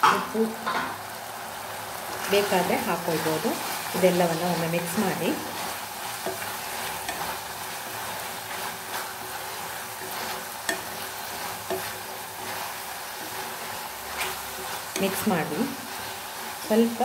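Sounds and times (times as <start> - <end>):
chicken sizzling in a pan: 0.0 - 17.0
spatula knocking and scraping pan: 4.3 - 16.8.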